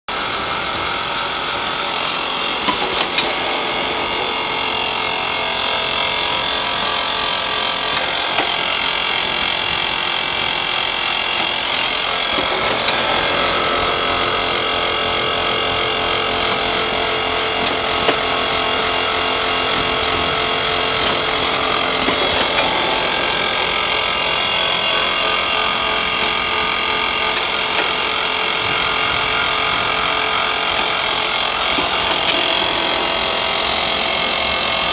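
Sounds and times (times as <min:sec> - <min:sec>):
packing machine whirring: 0:00.1 - 0:34.9.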